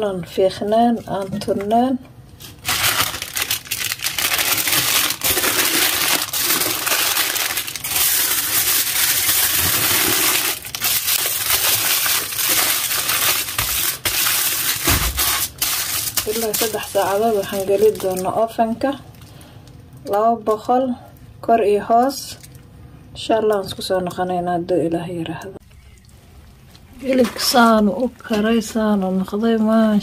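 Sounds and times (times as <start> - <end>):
foil and paper crinkling: 2.4 - 19.5.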